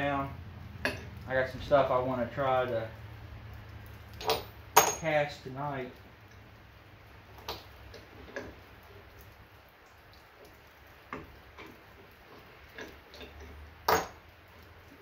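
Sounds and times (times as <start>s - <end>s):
metal ingots knocking: 4.2s - 5.1s, 13.2s - 14.2s.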